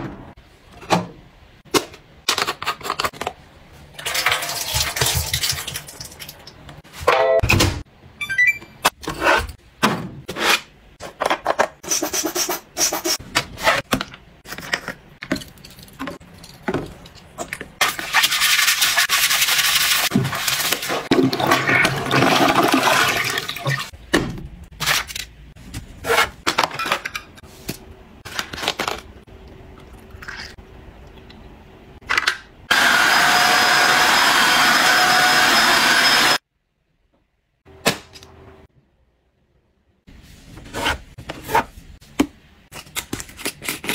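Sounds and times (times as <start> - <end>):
toilet flushing: 4.0 - 6.3, 17.8 - 24.0.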